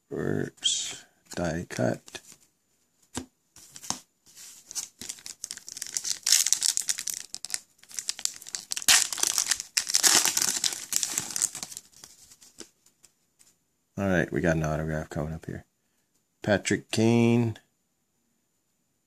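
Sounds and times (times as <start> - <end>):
plastic wrapper crinkling and tearing: 4.7 - 12.6.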